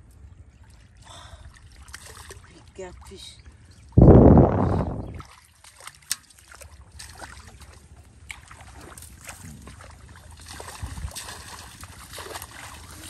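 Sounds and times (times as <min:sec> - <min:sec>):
splashing in shallow water: 0:00.0 - 0:13.0
low thud: 0:04.0 - 0:05.1.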